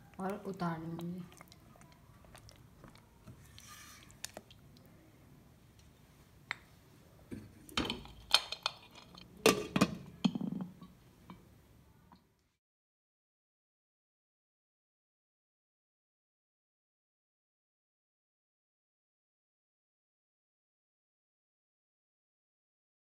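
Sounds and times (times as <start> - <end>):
spatula stirring in saucepan: 0.2 - 4.8.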